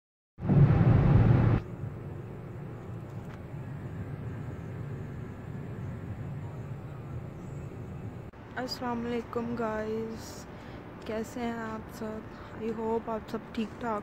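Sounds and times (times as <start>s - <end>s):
car road and engine noise: 0.4s - 9.5s.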